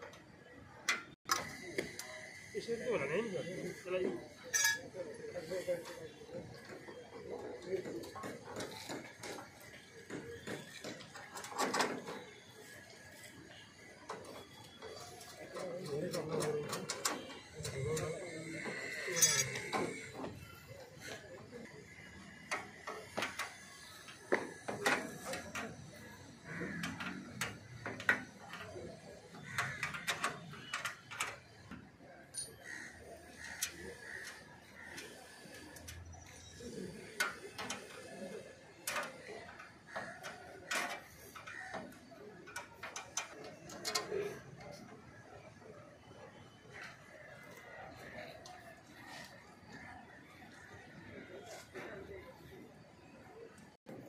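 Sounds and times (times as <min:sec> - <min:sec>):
wrench clicking on metal rails: 0:14.1 - 0:21.2, 0:21.9 - 0:36.4, 0:37.0 - 0:44.9
metal scrape: 0:18.6 - 0:20.1
metal parts knocking and clicking: 0:19.2 - 0:20.4, 0:22.4 - 0:31.5.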